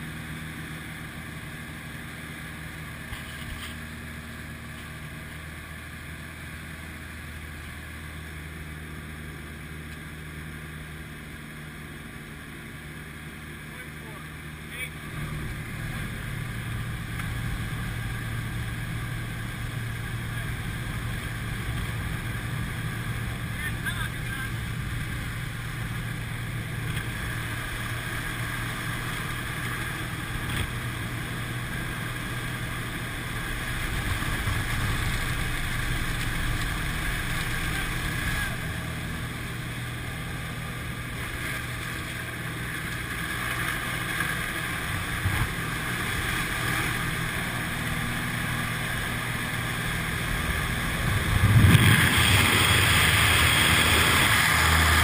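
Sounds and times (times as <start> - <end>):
plane engine droning: 0.0 - 55.0
rush of wind: 44.1 - 55.0.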